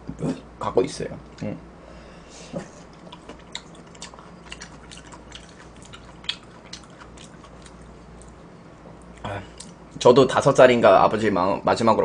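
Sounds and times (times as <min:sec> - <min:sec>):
person chewing food: 0:02.6 - 0:09.8
wet mouth clicks: 0:03.0 - 0:08.4.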